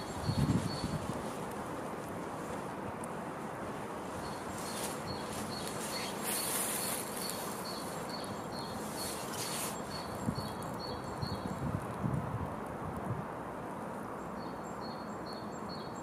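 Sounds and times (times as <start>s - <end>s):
steady hiss: 0.0s - 16.0s
faint high chirp: 4.2s - 11.6s.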